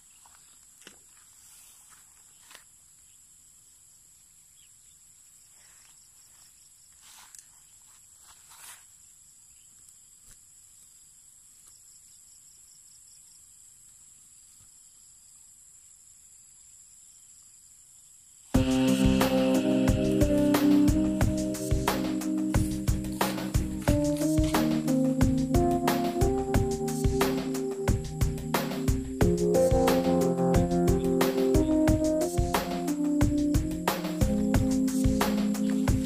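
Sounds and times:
rustling in grass: 0.0s - 3.1s, 5.2s - 9.2s, 18.8s - 30.4s
insects chirring: 0.0s - 36.0s
loud music: 18.6s - 36.0s.

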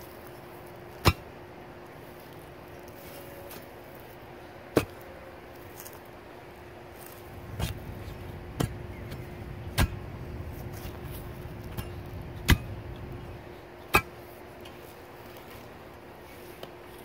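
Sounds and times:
metal bar chopping roots: 7.4s - 10.1s, 11.7s - 12.8s, 13.9s - 14.2s.

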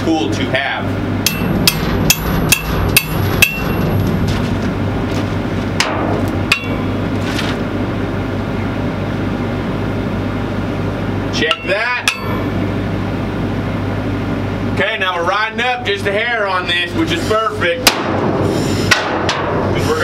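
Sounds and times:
low hum: 0.8s - 14.7s
hammer tapping on steel pipe: 1.2s - 3.7s, 11.5s - 12.4s.

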